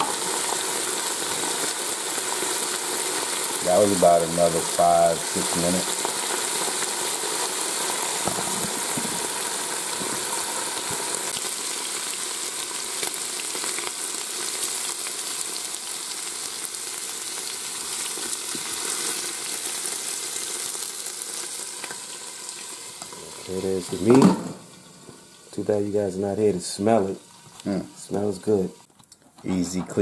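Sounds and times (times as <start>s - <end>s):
beef sizzling in oil: 0.0s - 28.9s.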